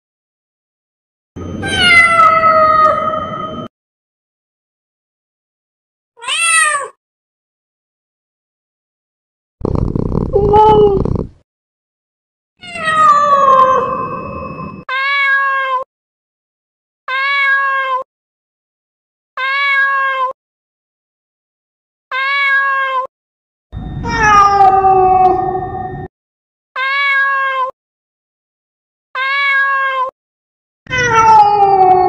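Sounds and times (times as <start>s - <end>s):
cats meowing: 1.7s - 3.2s, 6.2s - 6.9s, 12.6s - 14.0s, 22.1s - 23.1s, 24.1s - 25.6s, 26.8s - 27.7s, 29.2s - 30.1s, 30.9s - 32.0s.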